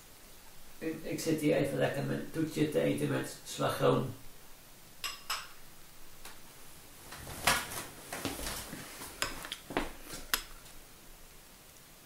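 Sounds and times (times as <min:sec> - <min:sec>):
metal spoon clinking in glass bowl: 0:05.0 - 0:05.6.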